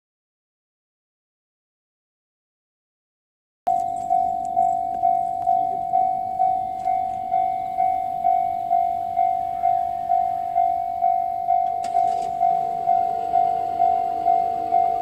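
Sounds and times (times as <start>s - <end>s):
level crossing warning bell: 3.7s - 15.0s.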